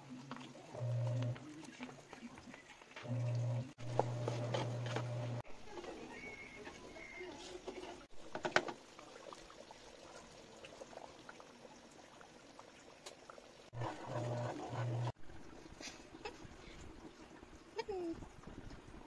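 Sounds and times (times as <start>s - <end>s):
sauce simmering in a pan: 5.8s - 13.7s.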